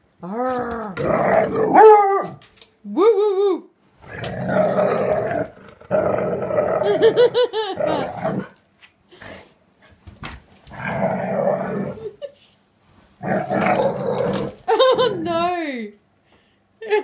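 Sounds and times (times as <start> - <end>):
dog growling: 0.2 - 1.8, 4.0 - 8.5, 10.7 - 12.2, 13.2 - 15.4
dog yelping: 1.7 - 2.4.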